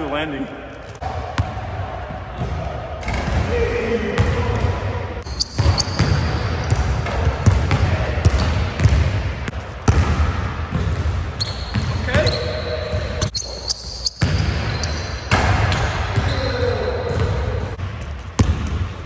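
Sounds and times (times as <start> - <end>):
basketball bouncing on hardwood: 5.6 - 9.1.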